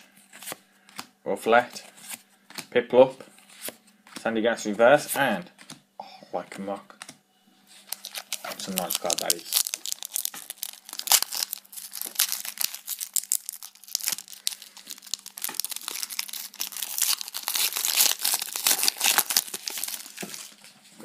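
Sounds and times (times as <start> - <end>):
foil wrapper crinkling and tearing: 7.8 - 20.7.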